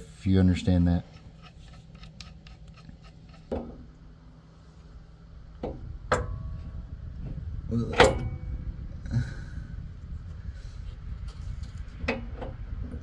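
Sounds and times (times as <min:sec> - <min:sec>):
metal knocks with ringing: 0:05.6 - 0:06.8, 0:07.9 - 0:08.5.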